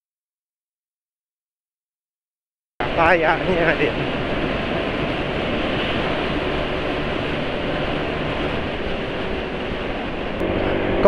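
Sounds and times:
wind noise: 0:02.8 - 0:11.0
scooter engine: 0:04.2 - 0:11.0.

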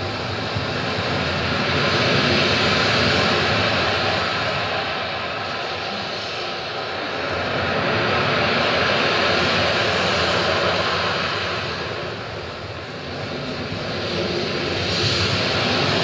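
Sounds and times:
ambient rushing roar: 0:00.0 - 0:16.0.

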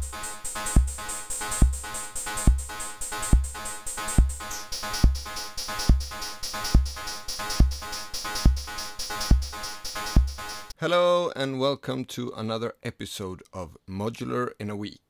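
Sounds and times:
deep synth kick drum: 0:00.0 - 0:10.6.

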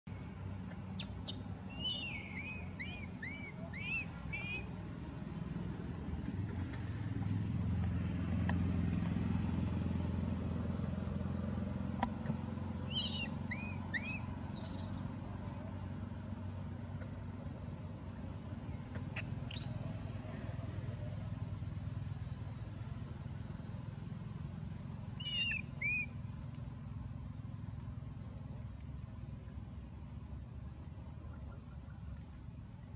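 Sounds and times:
motor traffic rumble: 0:00.0 - 0:32.9
high chirping squeaks: 0:13.0 - 0:15.6.

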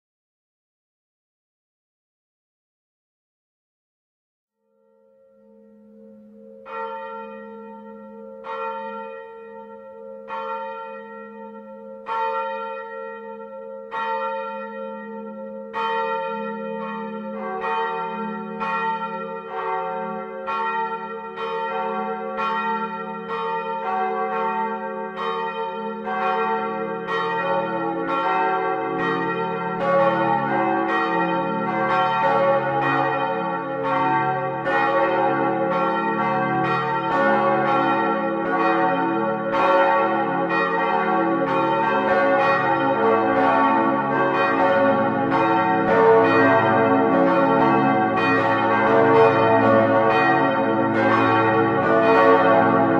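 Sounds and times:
church bells ringing: 0:04.7 - 0:52.9.

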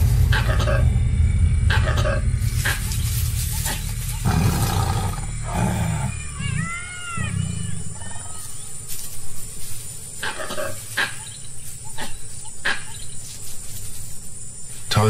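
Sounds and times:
tiger growling: 0:00.0 - 0:08.5.

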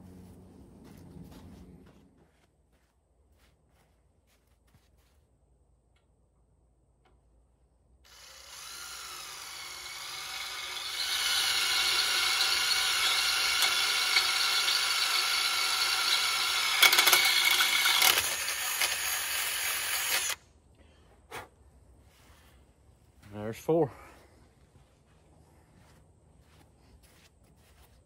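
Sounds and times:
cordless drill whining: 0:08.1 - 0:20.4
drill bit clicks: 0:08.1 - 0:20.4.

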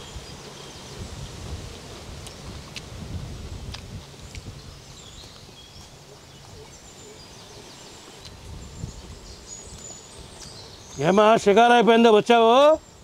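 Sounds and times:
faint bird chirps: 0:04.2 - 0:11.7.

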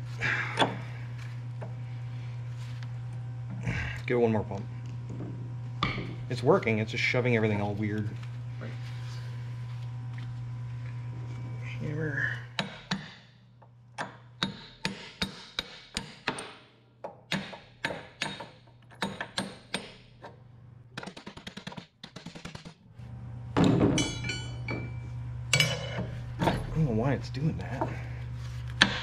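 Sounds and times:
hammer striking steel rod: 0:12.6 - 0:13.2, 0:14.0 - 0:16.6, 0:17.3 - 0:20.0
ringing metal clank: 0:23.9 - 0:26.6.

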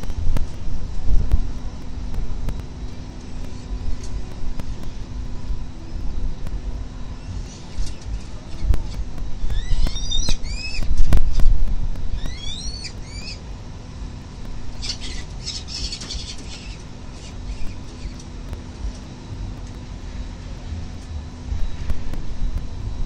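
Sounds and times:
low rumble of wind: 0:00.0 - 0:23.0
falcons squeaky calls: 0:07.2 - 0:11.1, 0:12.2 - 0:13.4, 0:14.8 - 0:18.2
falcons harsh rasping calls: 0:14.8 - 0:18.2.

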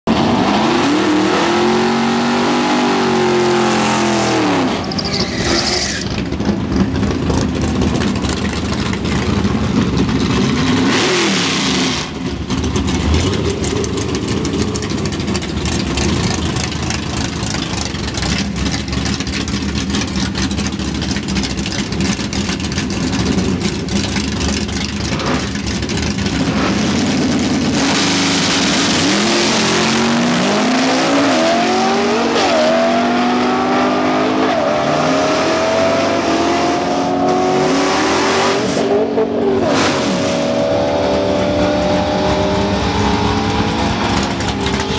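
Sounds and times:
car engine revving: 0:00.1 - 0:44.9
tyre screech: 0:03.9 - 0:06.3.

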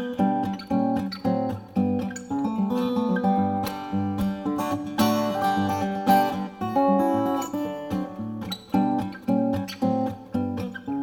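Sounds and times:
acoustic guitar chords: 0:00.0 - 0:11.0.

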